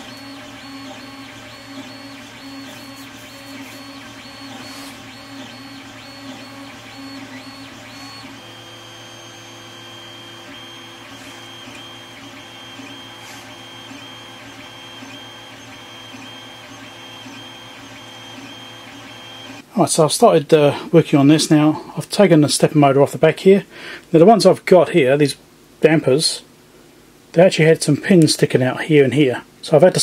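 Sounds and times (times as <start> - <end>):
printer stepper motors whining: 0.0 - 19.6.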